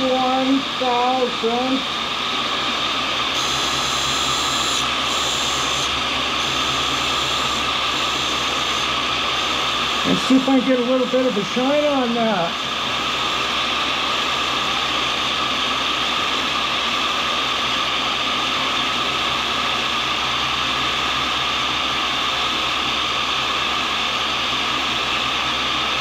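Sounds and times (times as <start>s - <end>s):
grinding wheel hiss: 0.0s - 26.0s
motor hum: 0.0s - 26.0s.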